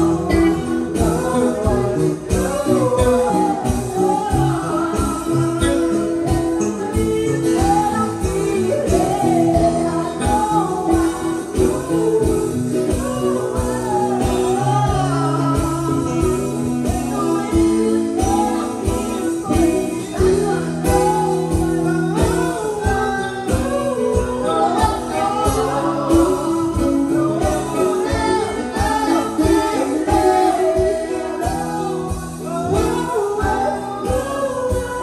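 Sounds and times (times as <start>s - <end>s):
person singing: 0.0s - 35.0s
steady beat: 0.0s - 35.0s.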